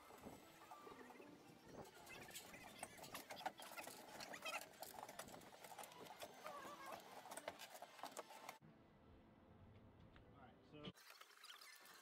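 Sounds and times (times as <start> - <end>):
chain hoist rattling: 1.8 - 8.6.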